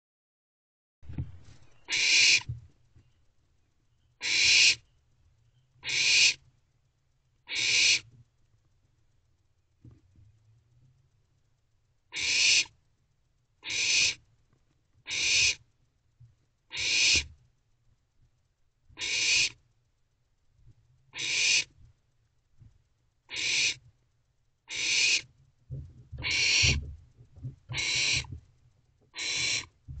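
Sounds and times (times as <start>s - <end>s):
soft thumps and scuffling: 1.0s - 1.6s, 25.7s - 28.5s.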